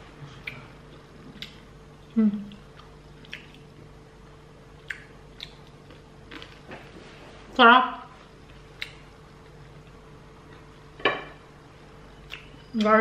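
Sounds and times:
faint steady hum: 0:00.0 - 0:13.0
crispy pork crackling being chewed: 0:00.2 - 0:07.0, 0:08.2 - 0:11.0
person humming: 0:02.1 - 0:02.6.

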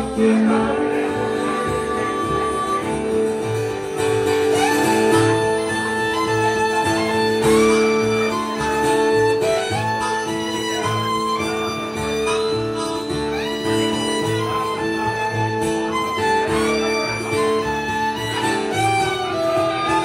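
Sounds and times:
fiddle: 0:00.0 - 0:20.0
harmonica: 0:00.0 - 0:20.0
plucked upright bass: 0:00.0 - 0:20.0
strummed acoustic guitar: 0:00.0 - 0:20.0.

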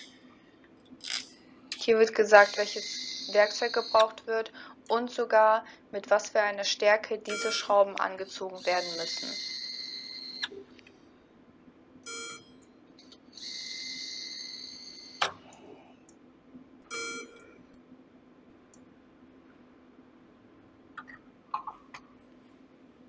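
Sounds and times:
faint steady hum: 0:00.0 - 0:23.0
electronic beeps: 0:02.3 - 0:04.1, 0:08.6 - 0:10.6, 0:13.4 - 0:15.3.

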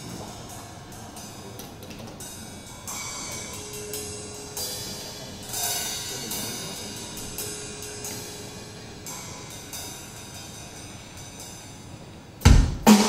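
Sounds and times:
cymbal crashes: 0:02.2 - 0:13.0
recorded music over loudspeakers: 0:11.4 - 0:13.0.

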